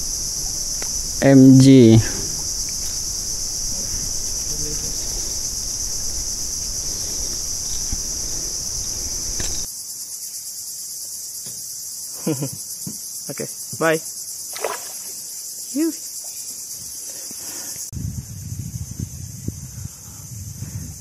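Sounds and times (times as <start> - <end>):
low rustling hiss: 0.0 - 9.7
insects buzzing: 0.0 - 21.0.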